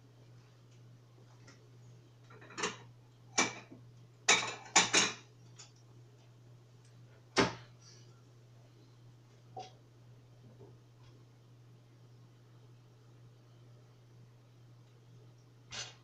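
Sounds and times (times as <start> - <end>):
faint low hum: 0.0 - 16.0
dishes knocking and clinking: 2.3 - 5.3.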